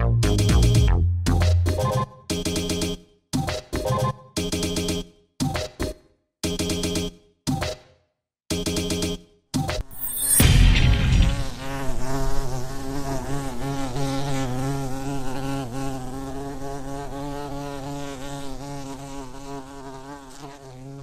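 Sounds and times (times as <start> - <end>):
logo sting hit: 10.0 - 11.9.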